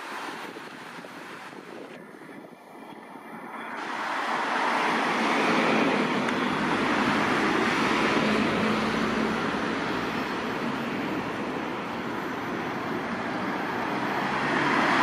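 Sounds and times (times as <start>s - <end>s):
vehicle passing by: 3.8s - 15.0s.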